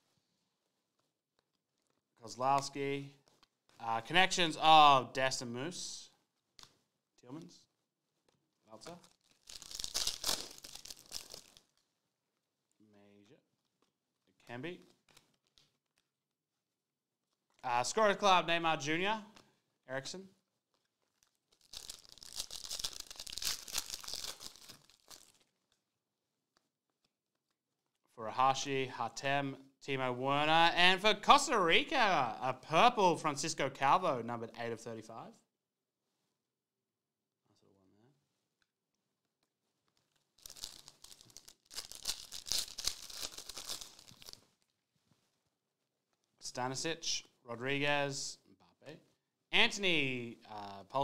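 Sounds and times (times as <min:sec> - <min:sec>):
foil wrapper crinkling: 0:08.1 - 0:12.0, 0:20.4 - 0:25.9, 0:39.6 - 0:44.8.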